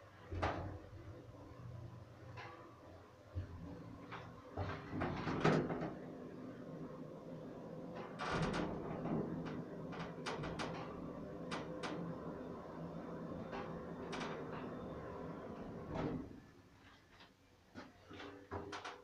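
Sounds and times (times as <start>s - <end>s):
elevator hum: 0.8s - 16.6s
elevator door clunks: 4.5s - 6.2s, 8.0s - 12.1s, 13.3s - 16.4s.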